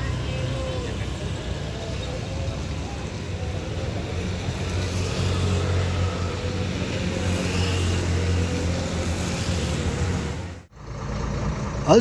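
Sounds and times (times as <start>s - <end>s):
bus diesel engine idling: 0.0s - 4.6s, 8.1s - 12.0s.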